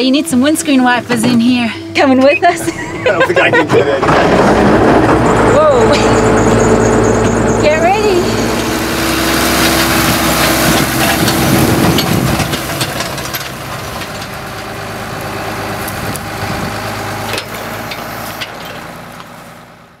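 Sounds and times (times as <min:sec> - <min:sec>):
tractor diesel engine running: 0:00.0 - 0:20.0
metallic clanks and knocks: 0:03.5 - 0:19.3.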